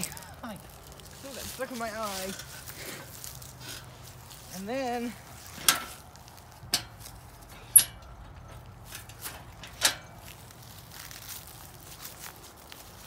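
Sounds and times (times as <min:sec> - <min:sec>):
bicycle knocking and clanking: 0:05.4 - 0:10.5.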